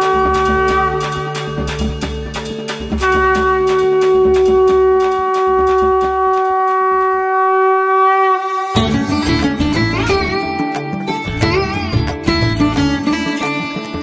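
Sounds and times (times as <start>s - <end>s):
percussion beat: 0.0s - 7.4s, 8.8s - 14.0s
horn-like wind instrument: 0.0s - 10.6s.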